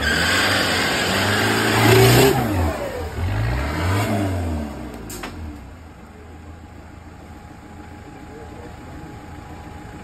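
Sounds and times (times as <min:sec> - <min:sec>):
off-road truck engine revving: 0:00.0 - 0:05.6.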